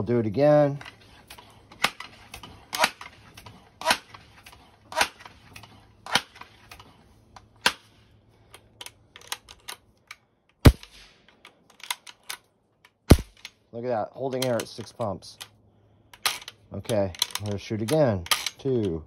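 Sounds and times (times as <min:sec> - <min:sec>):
air rifle pump lever clacking: 0:08.5 - 0:13.6, 0:14.3 - 0:19.0.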